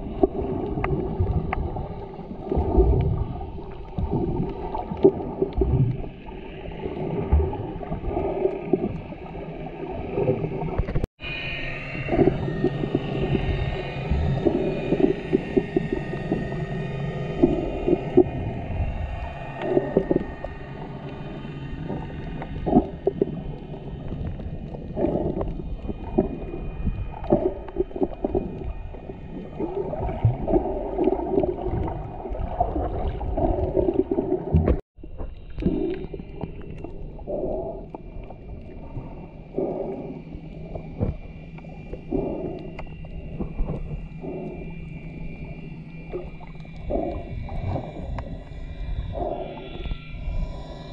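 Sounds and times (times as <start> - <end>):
muffled underwater water sloshing: 0.0 - 50.9
dull knocks underwater: 29.6 - 36.0.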